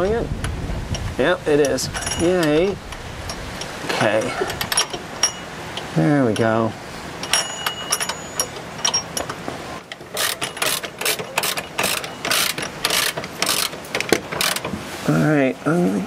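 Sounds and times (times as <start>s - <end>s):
socket ratchet clicking: 7.2s - 14.7s.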